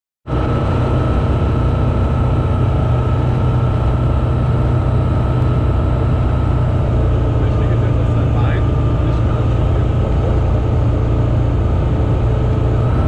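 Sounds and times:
light aircraft engine droning: 0:00.3 - 0:13.0.

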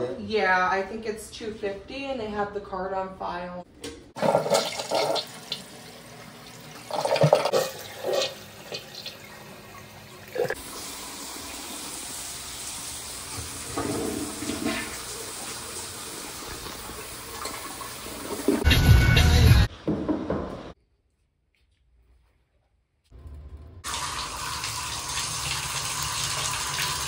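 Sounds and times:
toilet flushing: 0:04.2 - 0:18.7, 0:23.8 - 0:27.0.

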